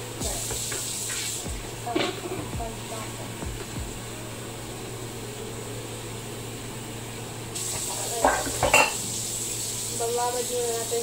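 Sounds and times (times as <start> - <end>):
kitchen tap running into sink: 0.0 - 3.8, 7.1 - 11.0
kitchenware clanking: 1.8 - 2.9, 7.6 - 9.2.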